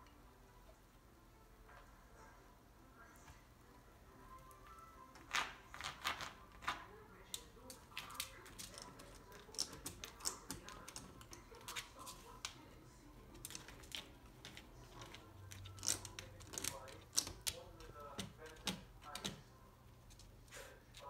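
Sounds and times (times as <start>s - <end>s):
dog claws scratching at door: 8.0s - 12.4s, 13.3s - 19.5s.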